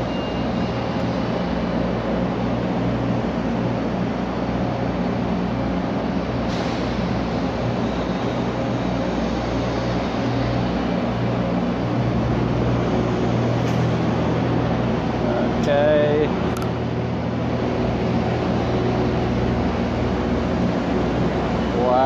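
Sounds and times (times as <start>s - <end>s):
diesel engines rumbling: 0.0s - 22.0s.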